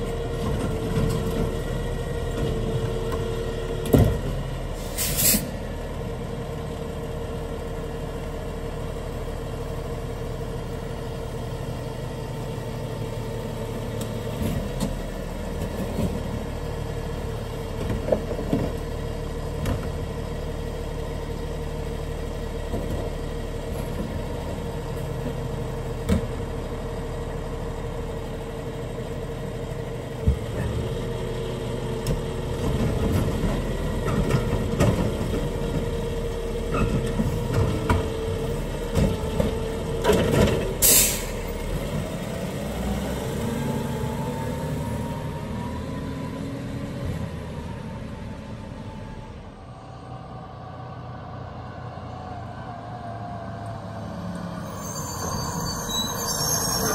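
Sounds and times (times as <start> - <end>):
diesel engine idling: 5.5 - 15.6, 16.2 - 40.0.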